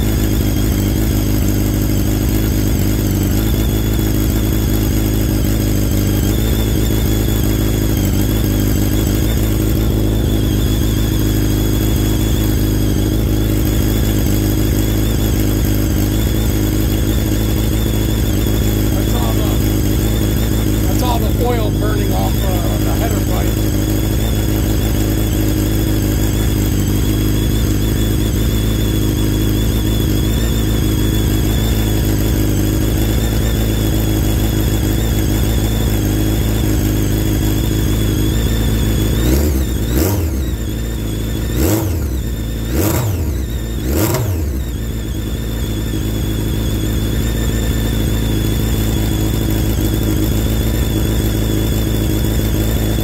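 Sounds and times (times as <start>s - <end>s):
engine throttle blips: 0.0s - 53.0s
motorcycle engine idling: 0.0s - 53.0s.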